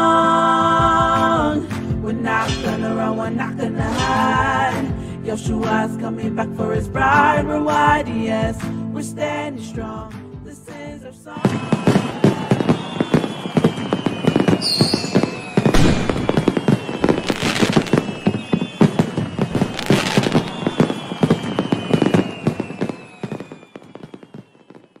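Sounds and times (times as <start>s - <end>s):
falling whistles: 11.4s - 25.0s
fireworks bursts: 11.4s - 25.0s
fireworks crackling and popping: 11.4s - 25.0s.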